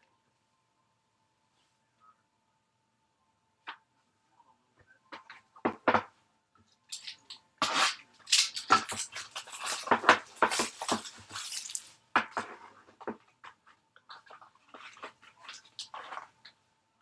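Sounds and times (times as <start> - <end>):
plastic wrap crinkling and tearing: 6.9 - 12.0.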